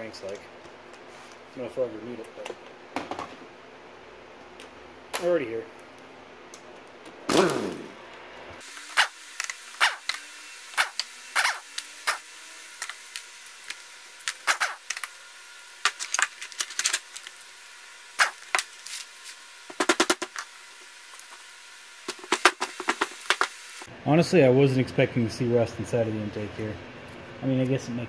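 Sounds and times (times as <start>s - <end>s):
air impact wrench spinning: 8.6s - 23.9s.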